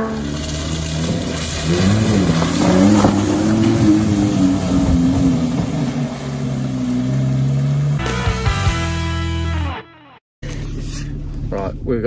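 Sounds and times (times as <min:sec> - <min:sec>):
tyres splashing through puddle: 0:00.0 - 0:08.0
car engine revving hard: 0:00.0 - 0:08.1.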